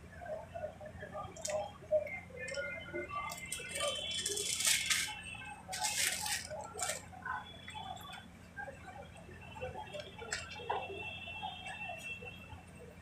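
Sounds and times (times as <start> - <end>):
paper rustling and crinkling: 3.2 - 7.1.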